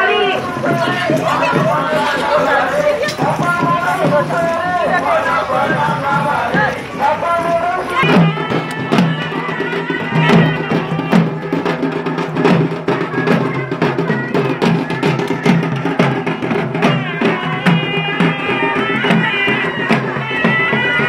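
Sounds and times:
drum beating steady rhythm: 0.0s - 21.0s
droning wind instrument: 14.4s - 21.0s.

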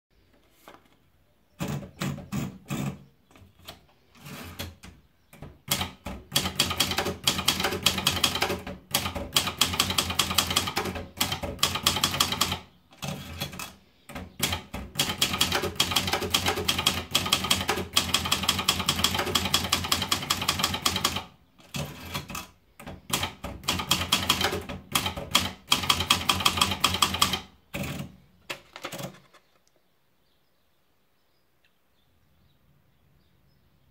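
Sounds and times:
typewriter paper rolling clicks: 1.6s - 3.0s, 3.6s - 29.4s
typewriter keystrokes: 3.6s - 29.2s.

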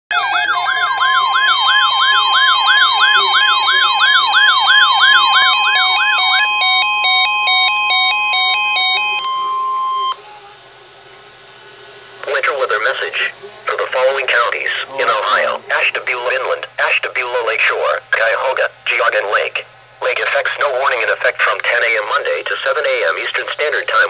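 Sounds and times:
stepped beeping alarm tones: 0.1s - 10.3s
warbling siren: 0.1s - 15.6s
steady warning tone: 0.1s - 24.0s.

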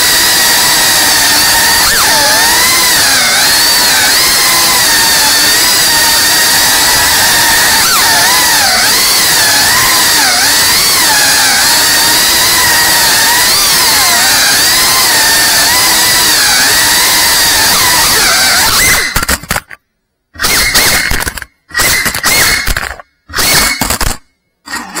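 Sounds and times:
drone motors and propellers whining: 0.0s - 19.4s.

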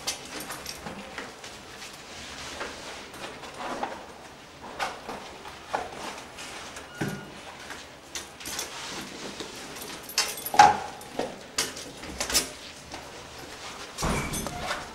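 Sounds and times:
metal locker knocks and clanks: 14.0s - 14.9s.

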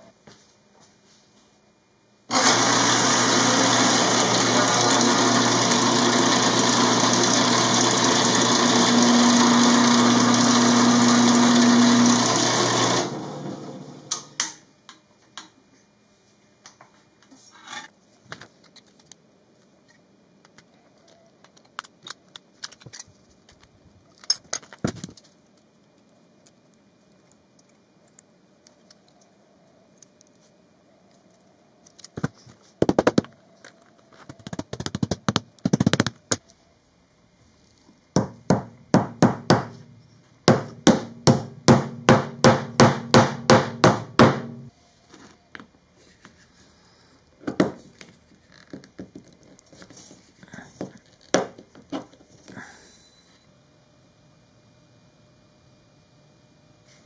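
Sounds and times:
hammer blows: 38.2s - 44.7s.

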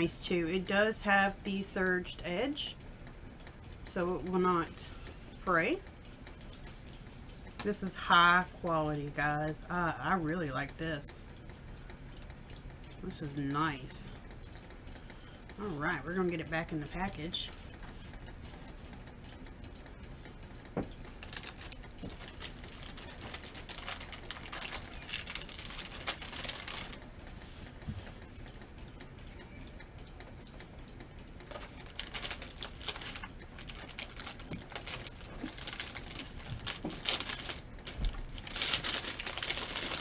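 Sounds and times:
plastic bag crinkling: 21.1s - 27.0s, 31.5s - 40.0s.

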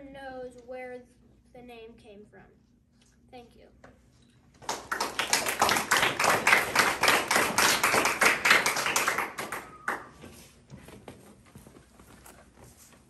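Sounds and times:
group hand clapping: 4.6s - 10.6s.

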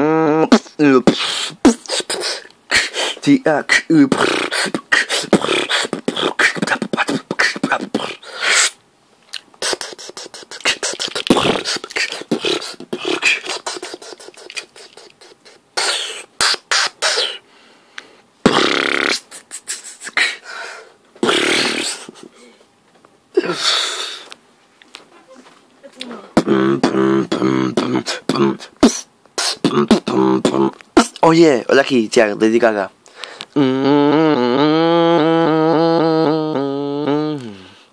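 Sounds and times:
person beatboxing: 0.0s - 8.8s, 9.4s - 17.4s, 18.4s - 20.5s, 21.2s - 22.3s, 26.0s - 31.4s, 33.5s - 37.6s
held vocal notes: 0.0s - 17.4s, 18.4s - 22.6s, 25.3s - 31.3s, 33.5s - 37.8s.

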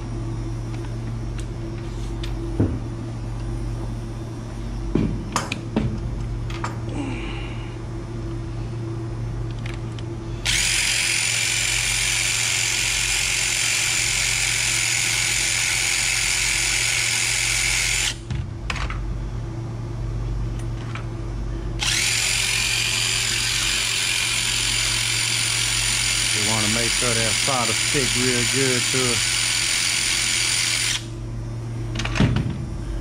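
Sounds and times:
cordless driver whining: 9.5s - 18.3s, 21.8s - 31.1s.

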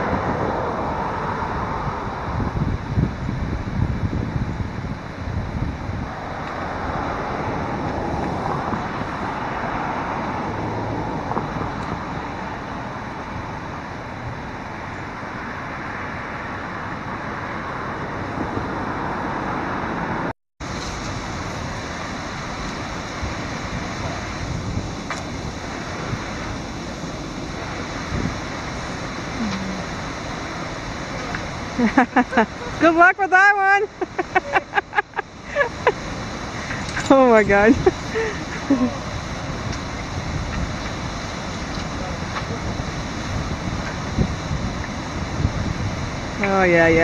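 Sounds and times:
low hum of road traffic: 0.0s - 47.0s
rushing river water: 0.0s - 47.0s
wind on microphone: 0.0s - 47.0s.

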